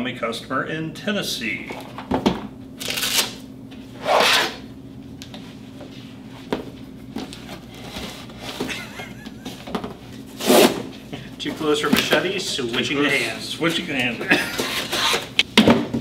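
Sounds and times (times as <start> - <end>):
blade slitting packing tape: 2.8 - 3.4, 4.0 - 4.6
machete blade scraping: 4.0 - 4.6.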